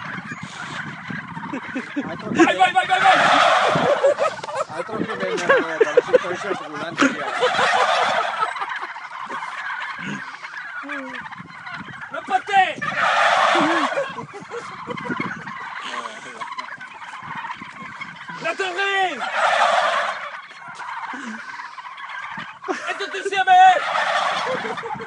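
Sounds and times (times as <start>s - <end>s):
turkeys gobbling: 0.0s - 25.0s.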